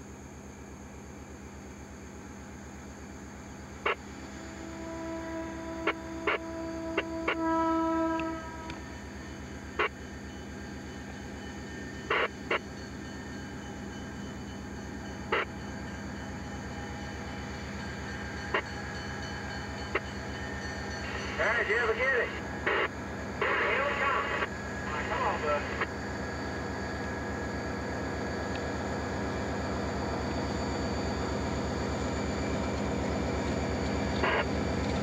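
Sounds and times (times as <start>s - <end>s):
locomotive air horn: 4.4s - 8.8s.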